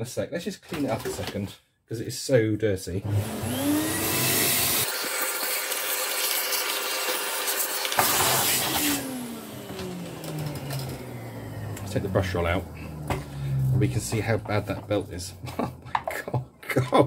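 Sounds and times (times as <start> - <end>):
vacuum cleaner motor: 3.0 - 15.0.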